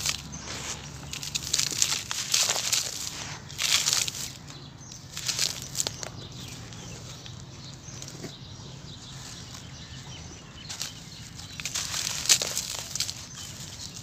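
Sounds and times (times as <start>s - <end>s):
hands scooping dry powder: 0.0s - 4.4s
crumbling clumps and falling grains: 0.0s - 8.4s, 10.6s - 14.0s.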